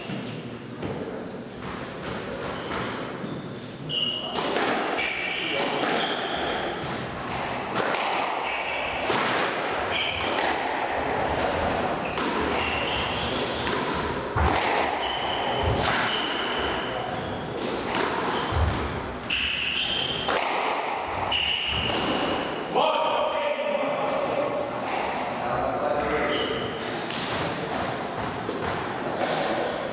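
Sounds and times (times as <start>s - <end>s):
squash ball hitting walls and rackets: 0.0s - 3.3s, 3.9s - 22.6s, 24.6s - 29.9s
shoes squeaking on wooden floor: 12.0s - 13.6s.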